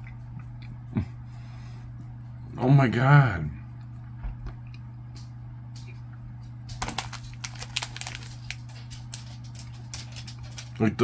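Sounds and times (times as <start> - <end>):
steady low hum: 0.0 - 11.0
person chewing crunchy cookie: 3.8 - 10.8.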